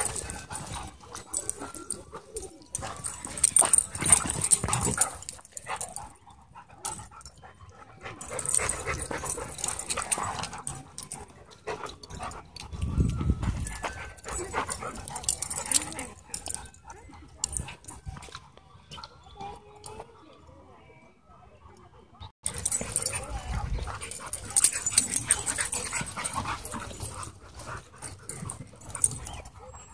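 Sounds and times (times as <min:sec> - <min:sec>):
dogs play-wrestling: 0:00.0 - 0:20.0, 0:22.4 - 0:29.9.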